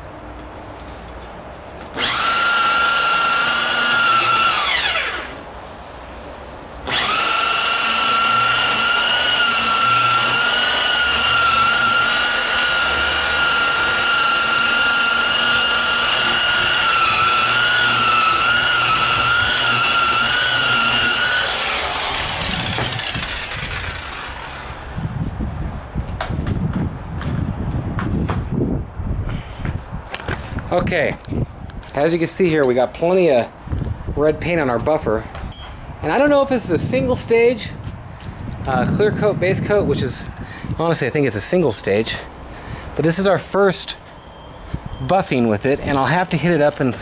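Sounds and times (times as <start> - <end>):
rotary buffer whining: 1.8 - 5.5, 6.8 - 25.2.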